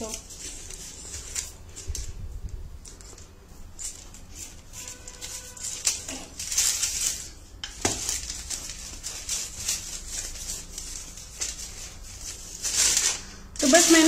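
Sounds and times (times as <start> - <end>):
rolling pin swishing over paper: 2.9 - 14.0.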